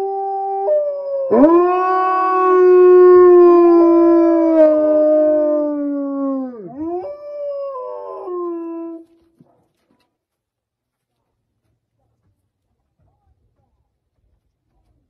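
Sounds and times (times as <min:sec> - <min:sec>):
wolves howling: 0:00.0 - 0:09.1.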